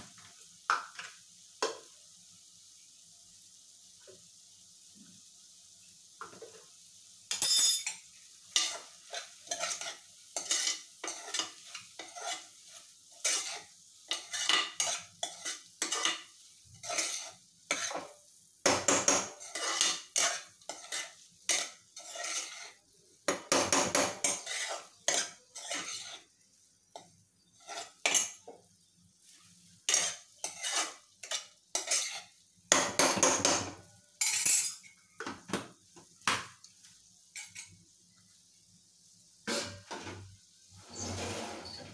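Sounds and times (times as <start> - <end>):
spoon scraping metal pot: 7.3 - 18.1, 18.8 - 26.3, 27.0 - 28.5, 29.8 - 32.4, 37.3 - 37.8, 39.5 - 41.9.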